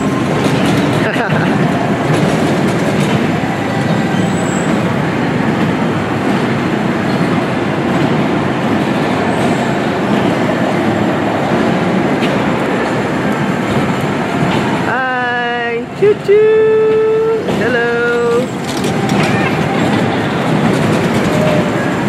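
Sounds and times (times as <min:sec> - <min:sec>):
kiddie train running on rails: 0:00.0 - 0:22.0.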